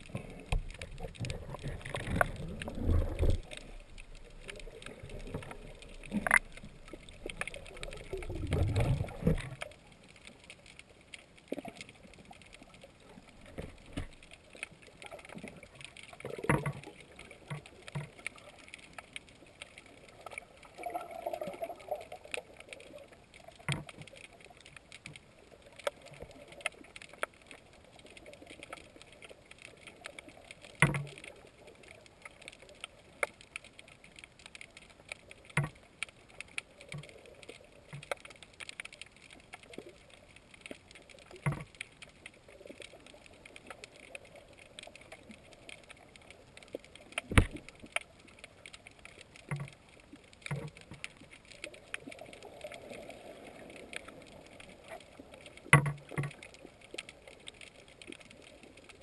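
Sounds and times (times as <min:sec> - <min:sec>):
sharp clicks and knocks: 0:55.7 - 0:56.5.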